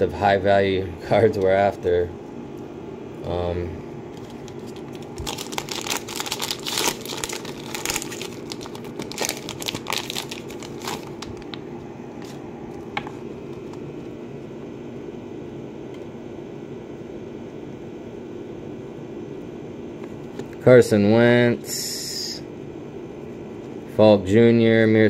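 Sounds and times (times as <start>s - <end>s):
low room hum: 0.0s - 25.0s
wrapper crinkling and tearing: 4.1s - 11.6s.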